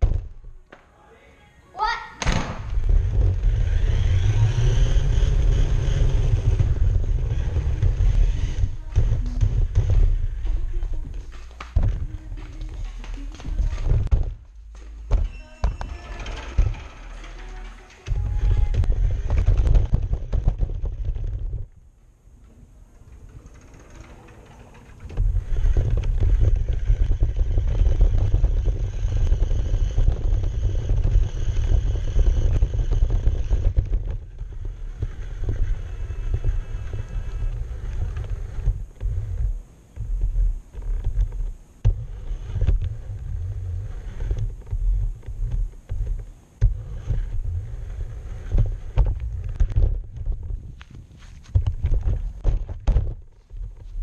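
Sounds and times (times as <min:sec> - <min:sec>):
rc car rumbling over grass: 0:02.5 - 0:12.9, 0:15.1 - 0:54.0
high motor whine: 0:02.7 - 0:12.0.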